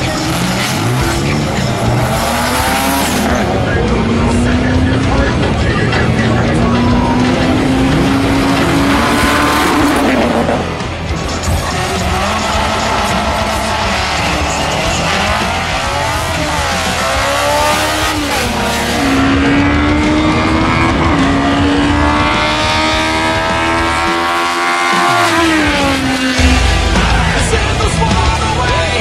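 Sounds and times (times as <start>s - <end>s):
racing cars accelerating hard: 0.0s - 29.0s.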